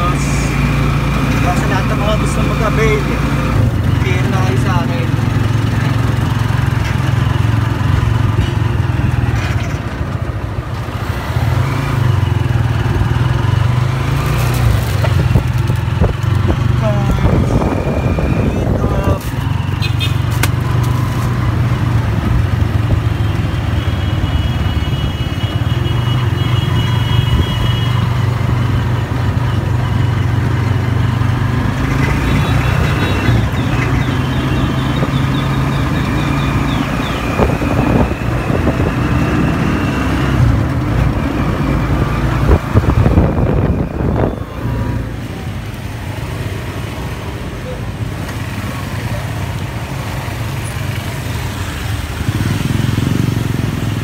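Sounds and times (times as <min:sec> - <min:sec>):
city street traffic: 0:00.0 - 0:54.0
vehicle engine humming: 0:00.0 - 0:54.0.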